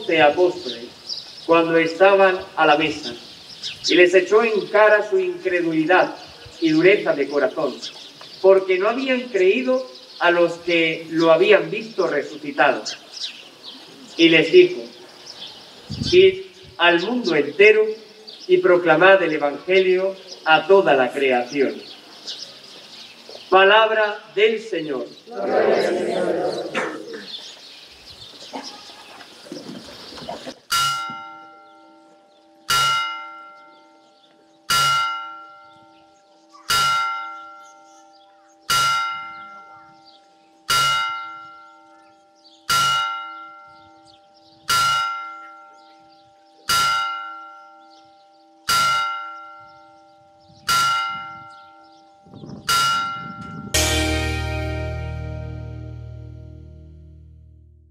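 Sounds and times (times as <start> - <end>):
church bell striking: 30.7 - 57.4.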